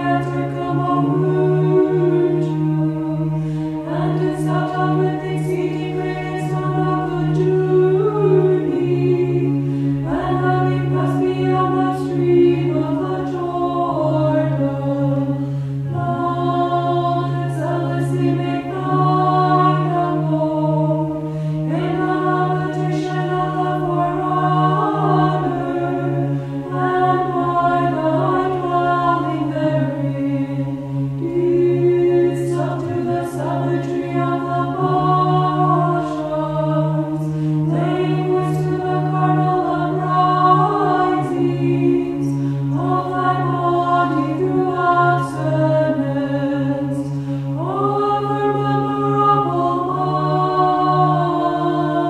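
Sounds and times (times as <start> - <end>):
choir chanting: 0.0 - 52.0
low held drone note: 0.0 - 52.0.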